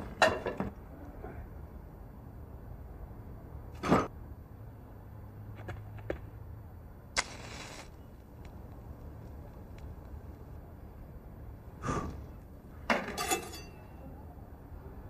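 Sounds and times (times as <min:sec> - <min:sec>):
match striking and flaring: 0:07.2 - 0:10.3.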